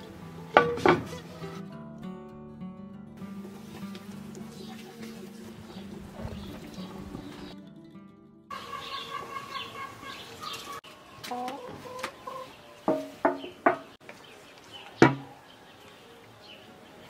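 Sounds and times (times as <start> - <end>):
chickens clucking: 3.4 - 7.6, 8.5 - 14.2.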